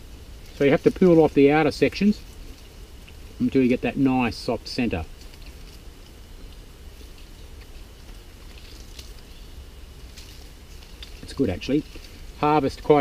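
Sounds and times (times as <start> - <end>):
steady low rumble: 0.0 - 13.0
man chewing crunchy leaf: 2.2 - 3.5, 5.0 - 12.4.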